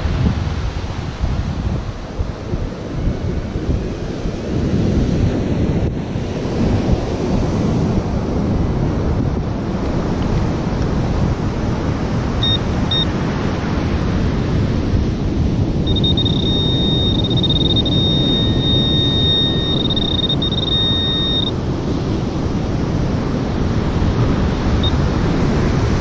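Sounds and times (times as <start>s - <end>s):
wind on microphone: 0.0s - 26.0s
metal detector pinpointer beeps: 12.4s - 13.1s, 15.9s - 21.5s
steady high-pitched detector tone: 12.4s - 13.1s, 15.9s - 21.6s.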